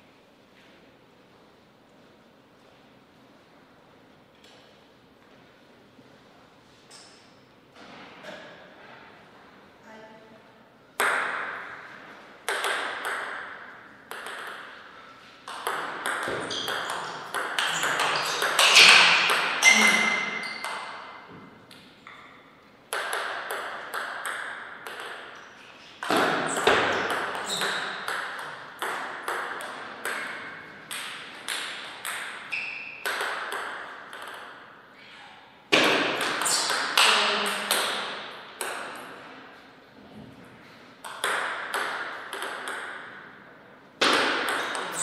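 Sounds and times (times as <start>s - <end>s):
table tennis ball hits: 11.0s - 34.8s, 35.7s - 39.2s, 41.0s - 43.4s, 44.0s - 45.0s.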